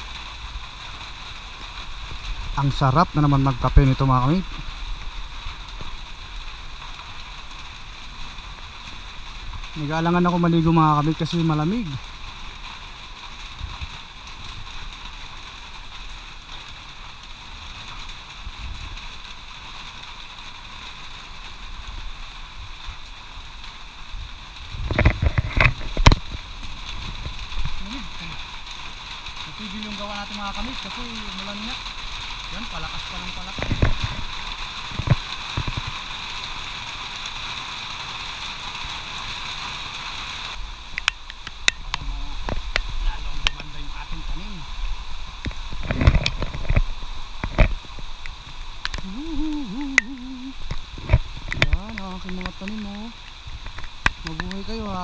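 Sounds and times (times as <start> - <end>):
heavy rain: 0.0 - 55.0
wind rumble on microphone: 24.1 - 27.8, 33.4 - 36.0, 44.8 - 52.4
drip-like clicks: 40.9 - 43.7, 49.8 - 54.7.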